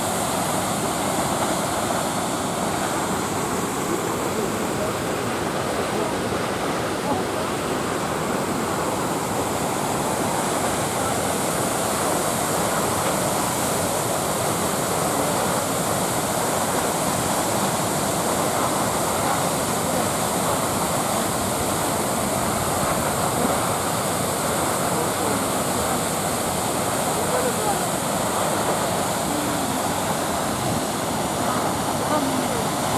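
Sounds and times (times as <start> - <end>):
waterfall rushing into the sea: 0.0 - 32.9
white water churning: 0.0 - 32.9.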